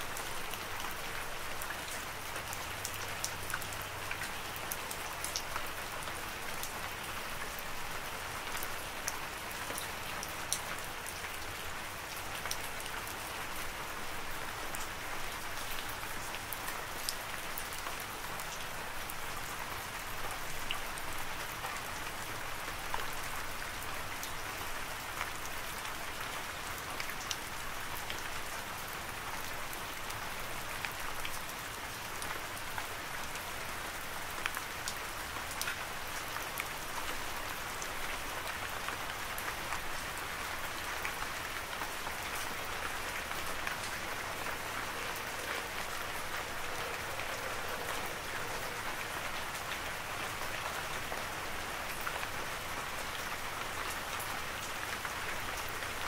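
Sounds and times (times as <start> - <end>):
steady rain: 0.0 - 56.0.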